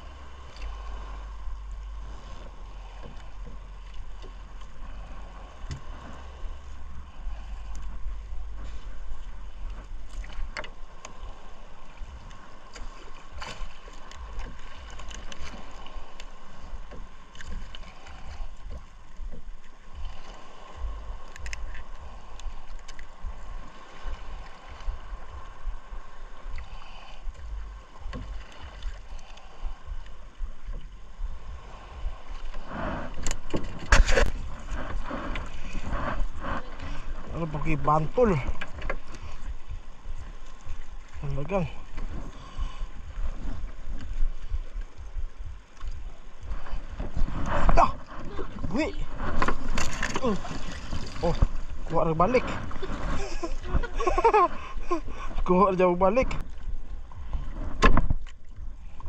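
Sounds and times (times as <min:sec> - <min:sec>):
wet net hauled into boat: 0:33.2 - 0:39.1, 0:47.0 - 0:54.6.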